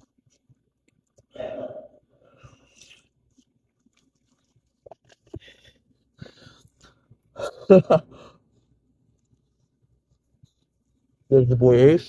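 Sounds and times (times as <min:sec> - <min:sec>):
person sipping: 0:01.1 - 0:07.0
mouth noises biting food: 0:02.3 - 0:07.0.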